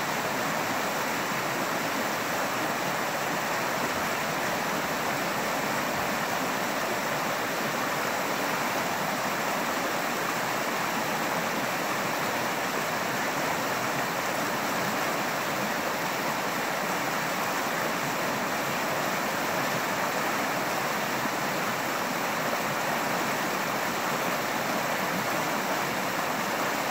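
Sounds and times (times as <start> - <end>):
water rushing over rocks: 0.0 - 26.9.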